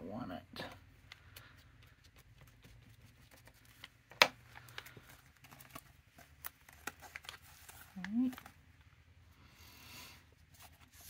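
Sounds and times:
hands rustling fabric and paper: 0:00.9 - 0:08.9.

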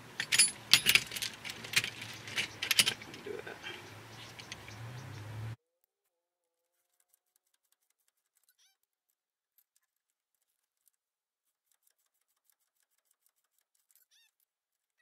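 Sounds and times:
faint ticks: 0:03.6 - 0:05.5.

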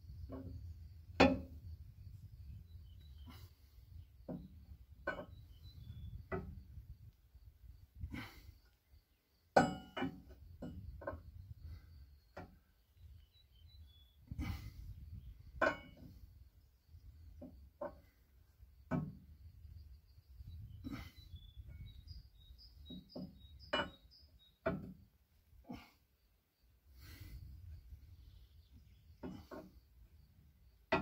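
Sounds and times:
socket wrench clanking on metal: 0:01.2 - 0:01.6, 0:04.3 - 0:05.5, 0:09.6 - 0:11.2, 0:15.5 - 0:16.2, 0:18.9 - 0:19.2, 0:22.9 - 0:25.0, 0:29.2 - 0:29.7.

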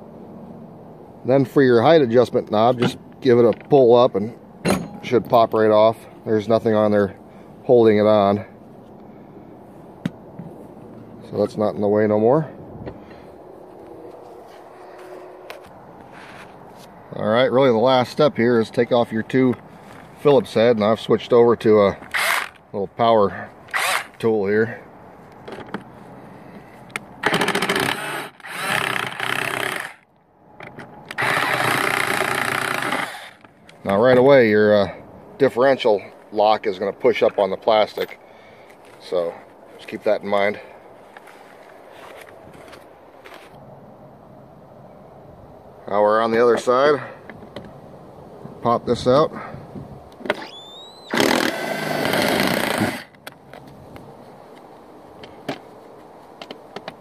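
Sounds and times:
cordless power driver running: 0:27.2 - 0:30.0, 0:31.1 - 0:33.4.

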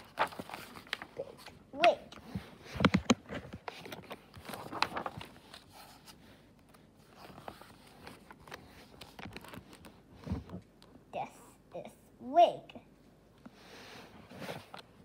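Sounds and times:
paper rustling: 0:00.0 - 0:10.6
book pages turning: 0:00.0 - 0:11.0, 0:14.2 - 0:15.0.

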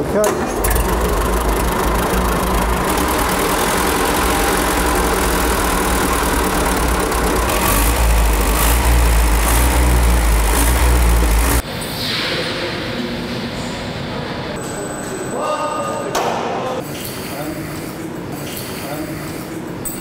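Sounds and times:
engine running: 0:00.5 - 0:11.6.

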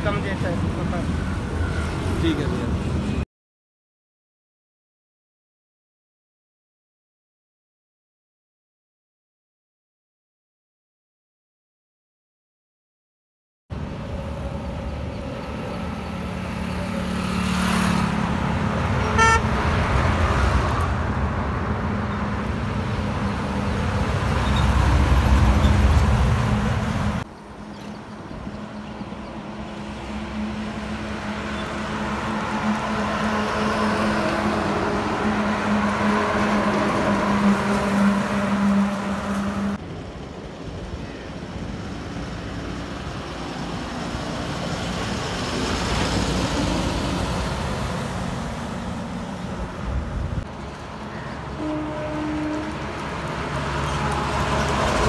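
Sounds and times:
lorries driving past: 0:00.0 - 0:03.2, 0:13.8 - 0:55.0
short horn toot: 0:19.0 - 0:19.5.

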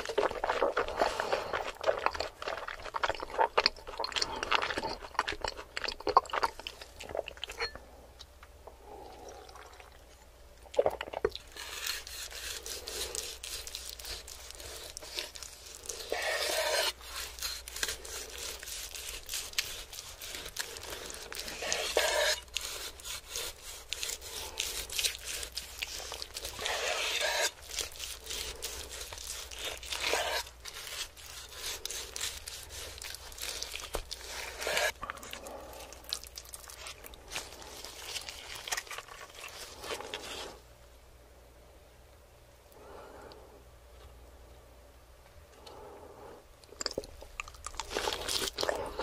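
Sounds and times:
knife sawing through crusty roast: 0:11.5 - 0:35.0, 0:36.7 - 0:40.6.

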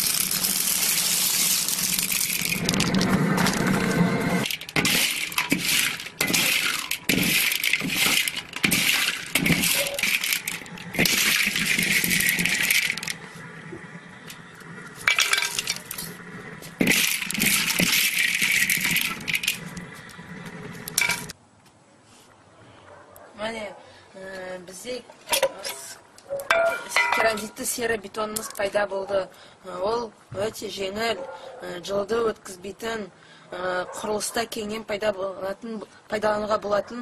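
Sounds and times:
pellets clattering in metal pan: 0:00.0 - 0:03.8, 0:04.4 - 0:13.2, 0:15.0 - 0:19.7, 0:20.9 - 0:21.3.

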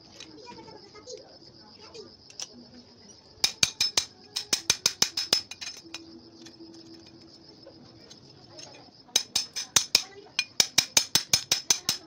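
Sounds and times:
insects chirring: 0:00.0 - 0:12.0
hammer striking metal trowel: 0:03.4 - 0:06.0, 0:09.2 - 0:12.0.

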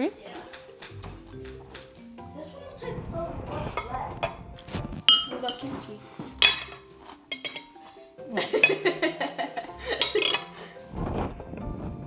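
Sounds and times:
background music: 0:00.0 - 0:12.0
metal spoon scraping ceramic bowl: 0:06.4 - 0:08.0, 0:10.0 - 0:10.6.

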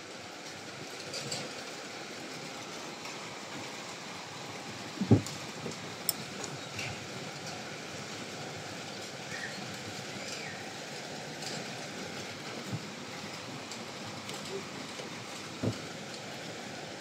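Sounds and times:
heavy rain falling: 0:00.0 - 0:17.0
low thump: 0:05.0 - 0:05.3.

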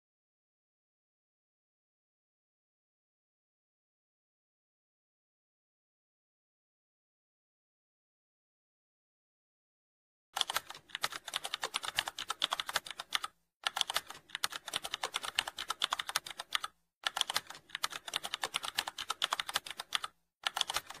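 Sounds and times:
keyboard typing clicks: 0:10.4 - 0:21.0.

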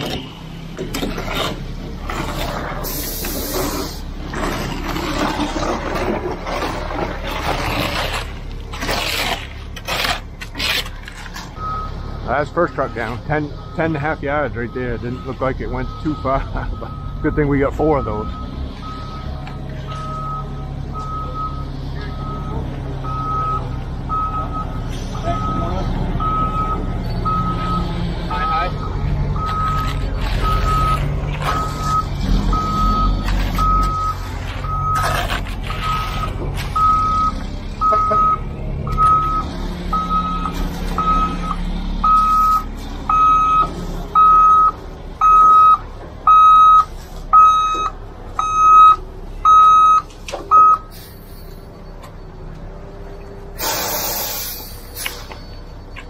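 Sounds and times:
truck engine running: 0:00.0 - 0:56.0
truck reversing alarm beeping: 0:00.0 - 0:56.0
short hiss: 0:53.6 - 0:55.3.

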